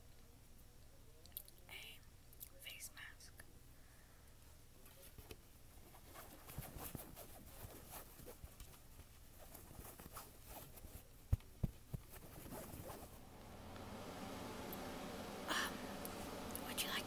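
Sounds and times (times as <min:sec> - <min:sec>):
fabric scratching and rustling: 0:05.0 - 0:13.3
low thumps: 0:13.0 - 0:17.0.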